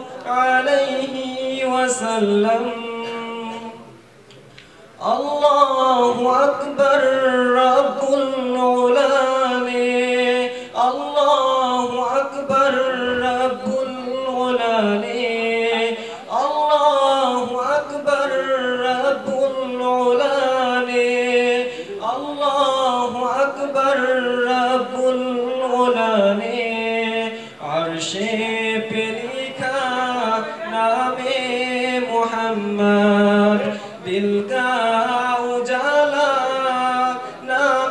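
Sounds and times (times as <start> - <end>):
man singing unaccompanied: 0.0 - 4.0, 4.9 - 37.9.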